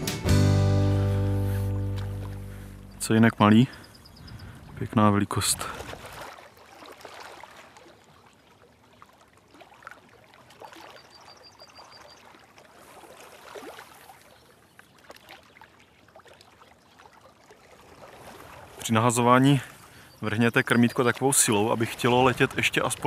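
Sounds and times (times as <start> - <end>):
small water splashes: 5.4 - 23.0
water trickling and dripping: 6.1 - 23.0.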